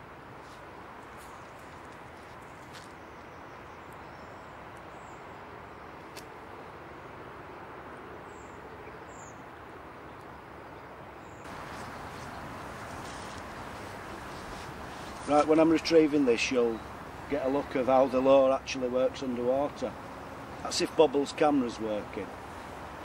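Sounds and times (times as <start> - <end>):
steady waterside hiss: 11.5 - 23.0.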